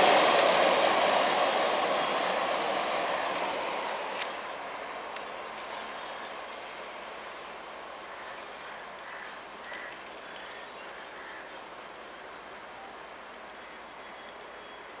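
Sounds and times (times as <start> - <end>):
electric train running: 0.0 - 4.2
high insect whine: 4.0 - 15.0.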